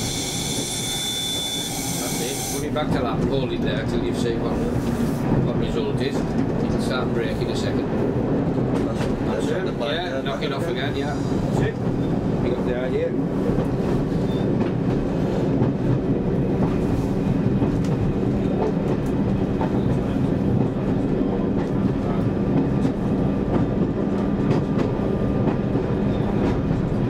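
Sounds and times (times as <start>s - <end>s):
train wheels clicking over rails: 13.2s - 27.0s.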